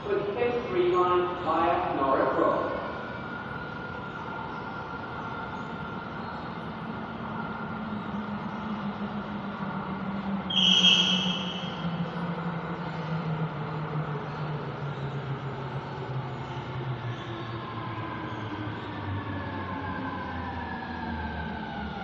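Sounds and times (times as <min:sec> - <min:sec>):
high-pitched squeal: 0:10.5 - 0:12.0.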